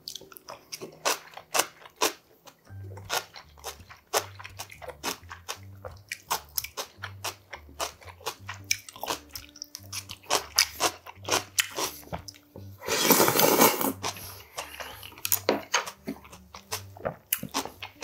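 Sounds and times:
crunchy bites and chewing: 0:00.0 - 0:18.0
loud slurp of noodles: 0:12.8 - 0:14.0.

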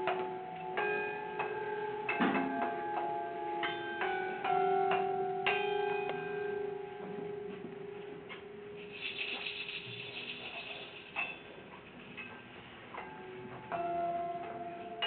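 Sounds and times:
metal objects struck ringing: 0:08.8 - 0:11.7
high metallic jangle: 0:08.8 - 0:12.4.

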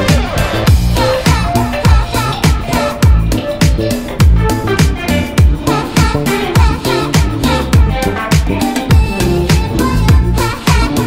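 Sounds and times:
upbeat dance music with drum beat: 0:00.0 - 0:11.0.

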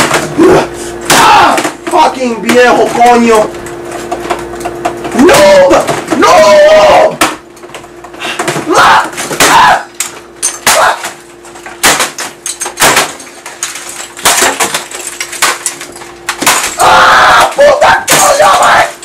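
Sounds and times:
man yelling in rage: 0:00.4 - 0:03.3, 0:05.1 - 0:07.2, 0:08.6 - 0:09.9, 0:16.8 - 0:19.0
bangs and crashes of smashing: 0:11.8 - 0:19.0.

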